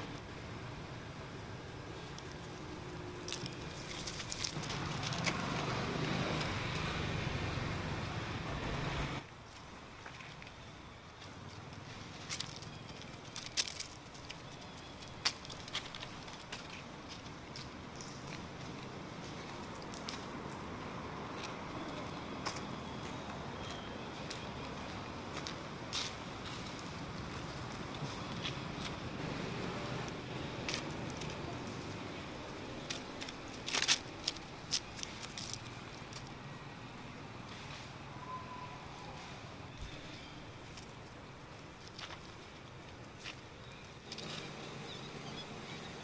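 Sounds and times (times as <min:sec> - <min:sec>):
steady outdoor hiss: 0:00.0 - 0:46.0
dry leaves crackling: 0:01.9 - 0:08.0, 0:09.4 - 0:44.6.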